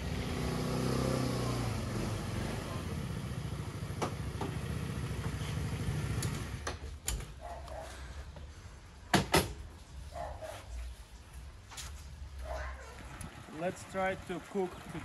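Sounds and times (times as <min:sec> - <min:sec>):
scooter engine idling: 0:01.6 - 0:06.7, 0:12.6 - 0:15.0.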